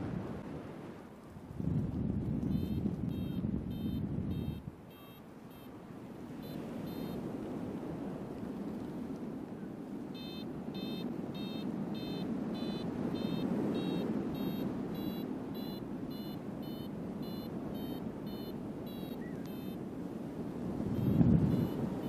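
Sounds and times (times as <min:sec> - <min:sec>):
wind rush: 0:00.0 - 0:04.8, 0:20.1 - 0:22.0
variometer short beeps: 0:02.5 - 0:05.8, 0:06.4 - 0:07.2, 0:10.2 - 0:19.8, 0:20.9 - 0:22.0.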